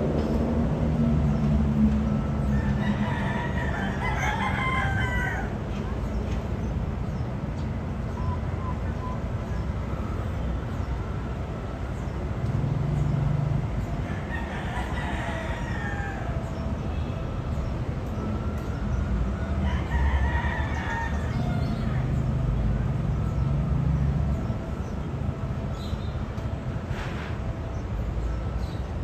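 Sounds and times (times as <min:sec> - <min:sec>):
diesel train rumbling: 0:00.0 - 0:29.0
rooster crowing: 0:02.4 - 0:05.6, 0:14.0 - 0:16.5, 0:19.6 - 0:22.2.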